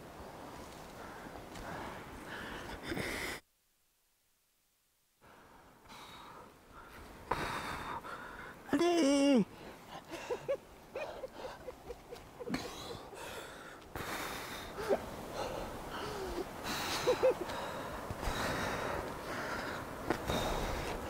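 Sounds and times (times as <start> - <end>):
person breathing hard: 1.0 - 3.4, 12.5 - 21.0.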